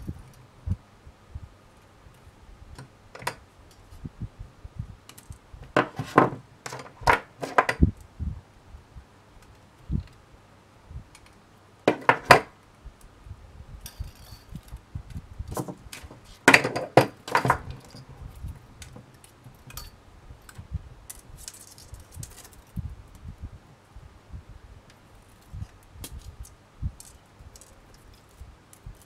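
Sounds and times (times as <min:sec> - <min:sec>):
wire ticks and rustles: 0:00.0 - 0:00.6, 0:01.7 - 0:04.2, 0:05.0 - 0:08.2, 0:13.8 - 0:24.0, 0:24.8 - 0:29.0
pliers clattering down: 0:15.5 - 0:18.1, 0:19.6 - 0:20.0.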